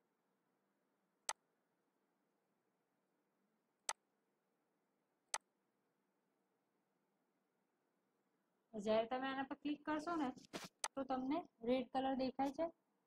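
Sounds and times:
computer mouse clicks: 10.4 - 11.0.

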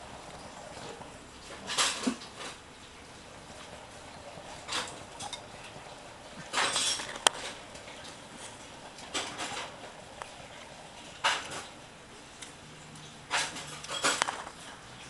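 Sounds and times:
hamster wheel rattling: 3.4 - 11.8, 13.3 - 14.8.

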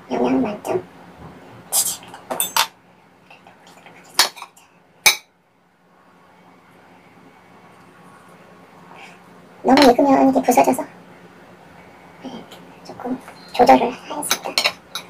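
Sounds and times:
cutlery clinking on plate: 2.3 - 2.7, 14.3 - 15.0.

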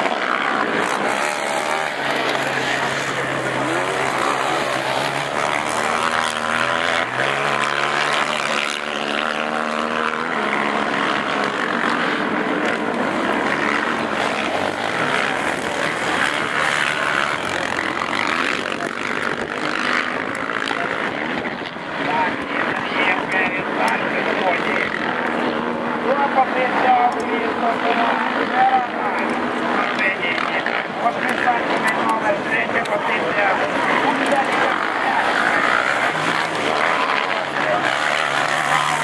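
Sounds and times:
quad engines revving: 0.0 - 39.0.

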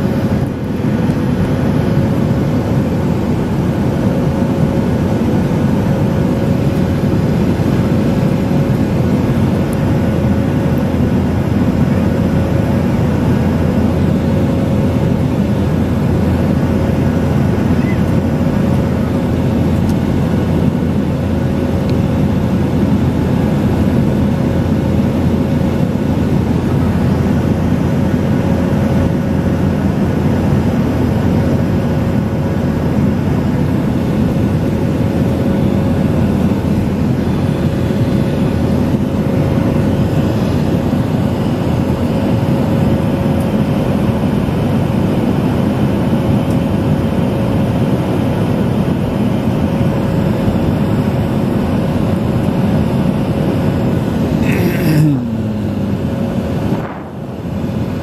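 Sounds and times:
jet engine and airflow roar: 0.0 - 58.0
thin steady hum: 53.1 - 58.0.

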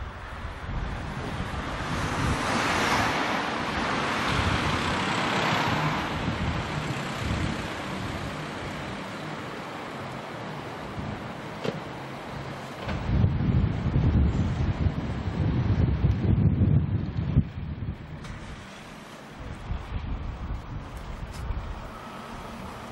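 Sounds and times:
wind rumble on microphone: 0.0 - 22.9
vehicle passing: 0.2 - 11.1, 18.0 - 22.9.

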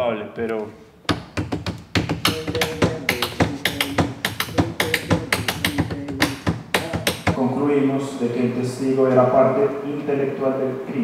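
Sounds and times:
tapping on a wooden desk: 1.0 - 7.4.

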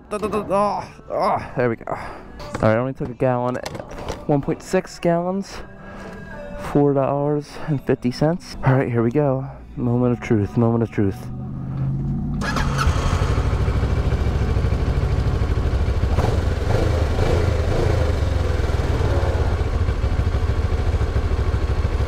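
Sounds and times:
motorcycle engine idling: 11.3 - 22.0.

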